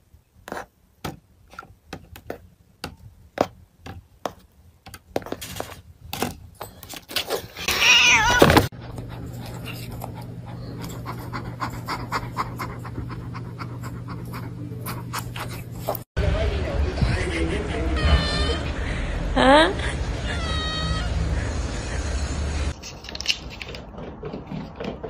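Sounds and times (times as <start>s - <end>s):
cat yowling: 7.6s - 8.7s, 20.2s - 21.4s.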